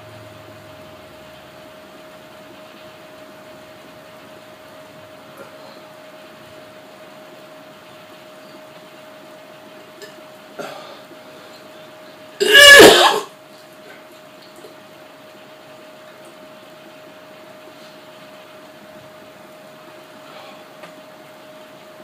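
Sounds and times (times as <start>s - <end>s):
man retching: 12.4s - 13.3s.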